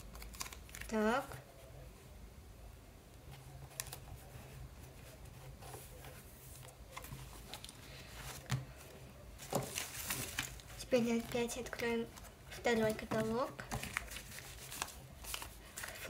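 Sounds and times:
paper rustling and tapping: 5.0 - 8.8, 9.4 - 16.0.

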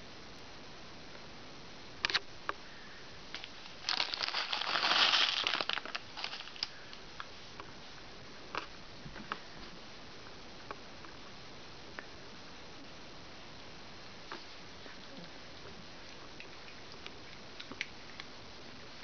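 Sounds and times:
plastic bag crinkling: 3.4 - 7.0.

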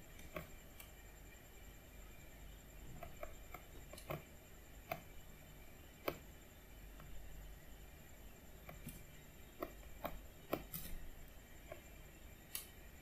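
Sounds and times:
faint low hum: 0.0 - 13.0
computer mouse clicking: 0.1 - 1.0, 2.9 - 5.3, 6.0 - 6.3, 8.6 - 11.9.

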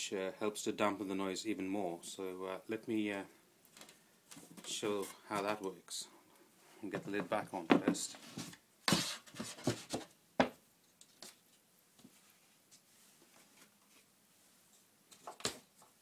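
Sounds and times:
wooden panel knocking and scraping: 6.9 - 10.6.

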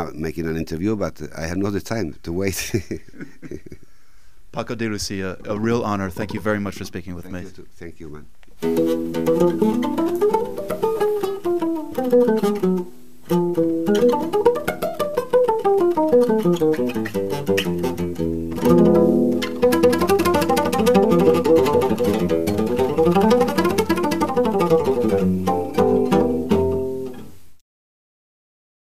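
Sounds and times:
flamenco guitar: 8.6 - 27.4.

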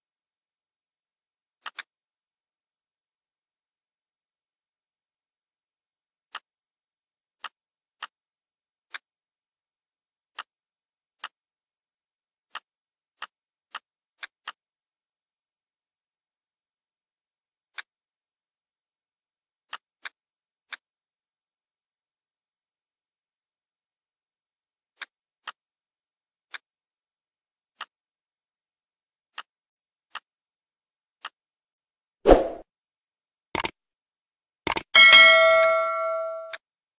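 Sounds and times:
computer mouse clicks: 34.7 - 34.9.

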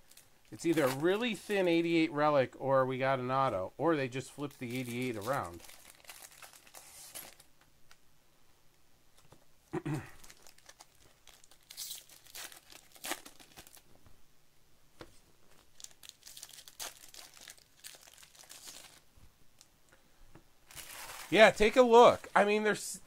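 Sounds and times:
wrappers crinkling and tearing: 0.0 - 1.7, 4.5 - 7.5, 10.2 - 13.9, 15.6 - 19.1, 20.7 - 22.6.

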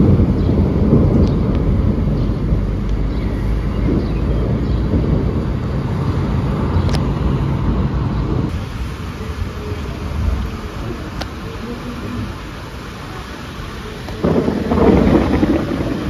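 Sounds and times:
thunder rumbling: 0.0 - 16.0.

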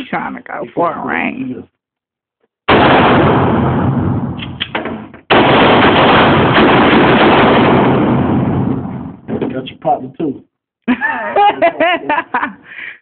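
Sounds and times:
gunshot blasts indoors: 2.7 - 9.3.

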